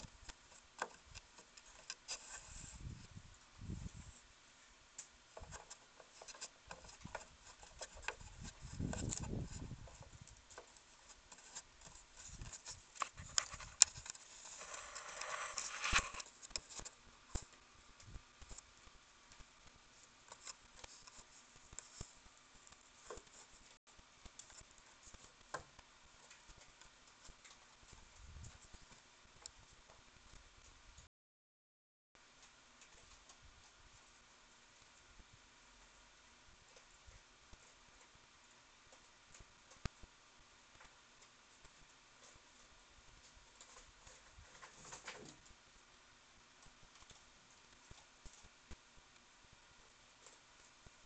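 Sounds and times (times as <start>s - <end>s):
claws scratching on wood: 0.1s - 3.1s, 5.3s - 16.9s.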